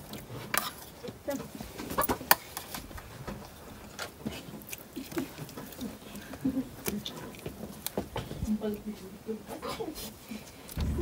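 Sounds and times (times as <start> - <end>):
person chewing with mouth smacking: 3.4 - 8.8.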